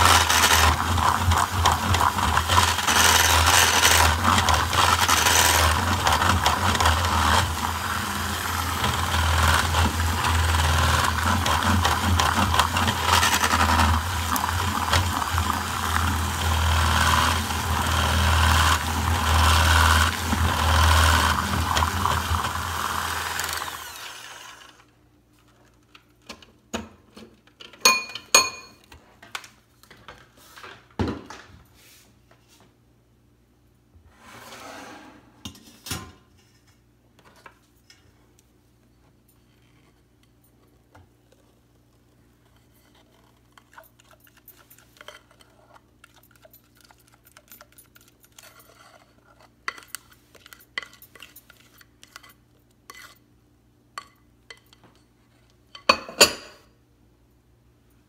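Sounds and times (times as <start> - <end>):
electric hand mixer whipping batter: 0.0 - 24.8.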